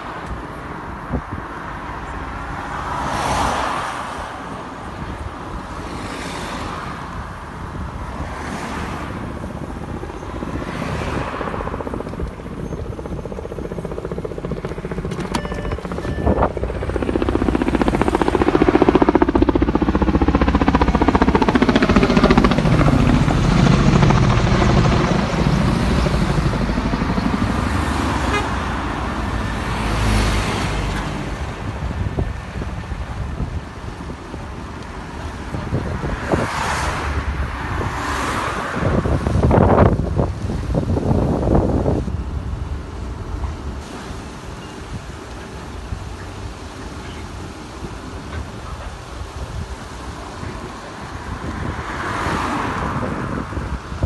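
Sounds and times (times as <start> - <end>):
vehicles swishing past: 0.0 - 54.0
helicopter rotor chop: 9.1 - 36.1.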